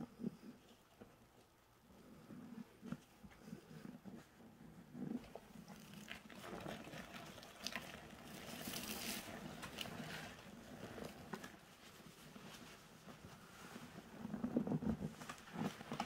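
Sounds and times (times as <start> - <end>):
wet sponge squelching: 5.2 - 11.5.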